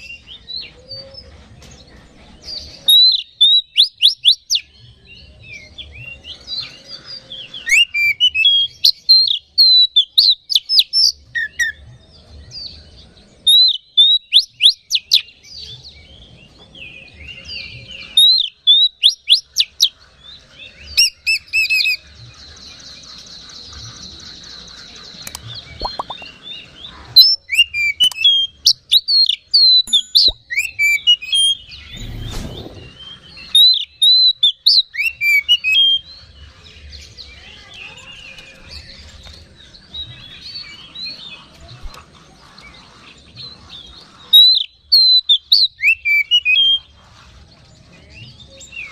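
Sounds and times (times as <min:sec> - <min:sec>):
songbird singing loudly: 0:02.8 - 0:11.8, 0:12.7 - 0:16.0, 0:16.8 - 0:41.6.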